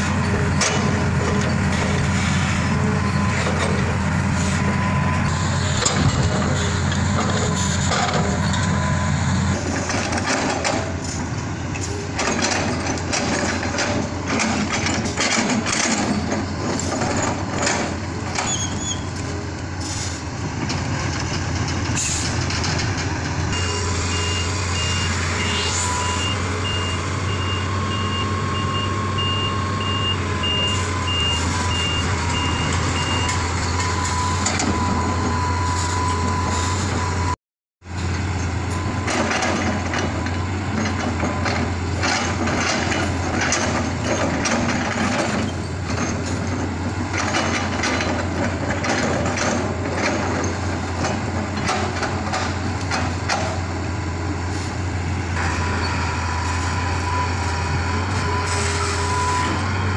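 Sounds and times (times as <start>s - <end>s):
excavator diesel engine running: 0.0s - 59.9s
reversing alarm beeping: 2.6s - 6.6s, 23.5s - 37.4s, 55.5s - 59.9s.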